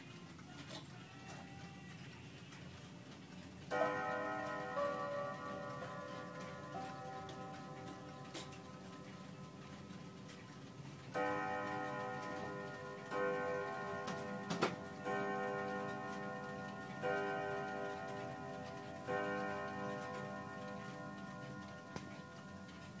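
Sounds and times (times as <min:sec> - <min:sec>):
clock ticking: 0:02.0 - 0:23.0
wall clock striking: 0:03.7 - 0:23.0.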